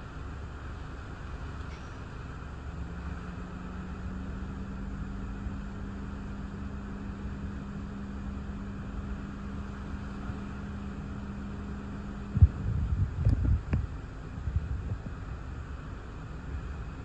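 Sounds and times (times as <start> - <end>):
car idling hum: 0.0 - 17.0
wind and rain: 12.2 - 17.0.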